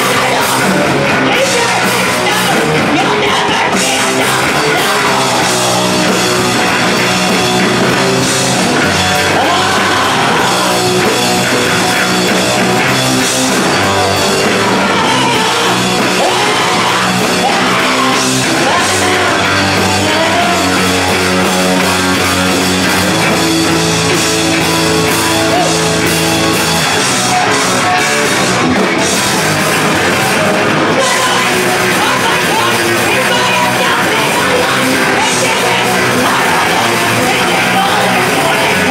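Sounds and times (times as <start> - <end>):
woman singing: 0.0 - 6.1, 9.3 - 10.8, 14.7 - 20.8, 31.0 - 38.9
distorted electric guitars: 0.0 - 38.9
drum kit: 0.0 - 38.9.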